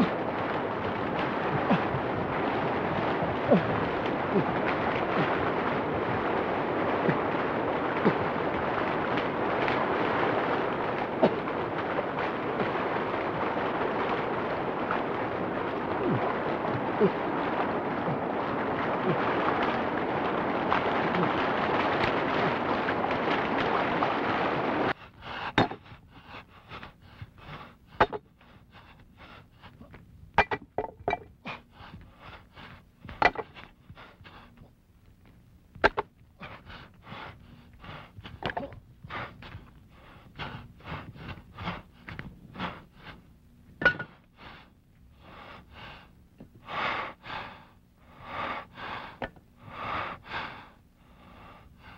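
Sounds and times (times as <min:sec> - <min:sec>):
rushing river water: 0:00.0 - 0:25.9.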